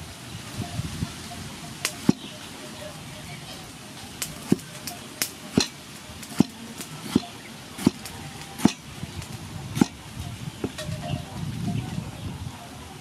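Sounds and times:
cleaver chopping on wooden block: 5.5s - 5.8s, 6.4s - 8.8s, 9.8s - 10.0s.

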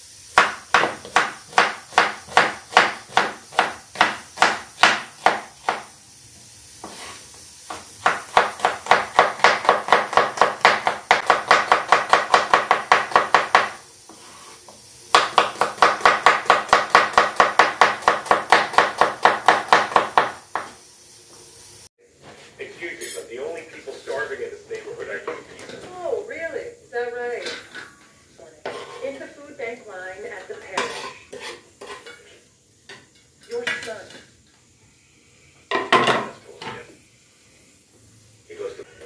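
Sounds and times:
knife chopping on wooden board: 0.4s - 5.9s, 7.7s - 13.8s, 15.1s - 20.7s.

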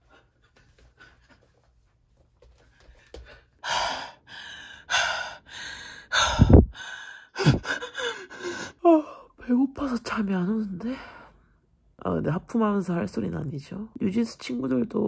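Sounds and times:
woman gasping breaths: 2.8s - 9.3s.

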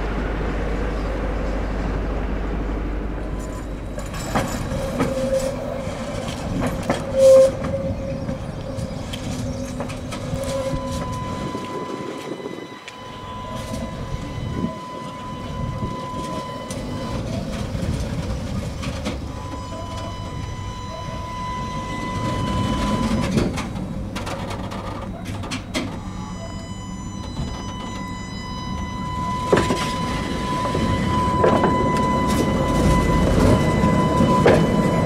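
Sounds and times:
high whine: 0.0s - 17.2s
tram wheels clattering on rails: 0.0s - 35.0s.

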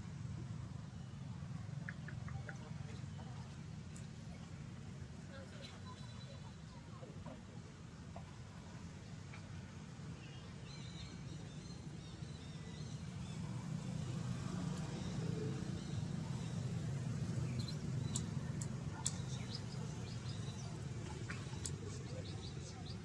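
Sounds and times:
passing vehicle rumble: 12.7s - 23.0s.

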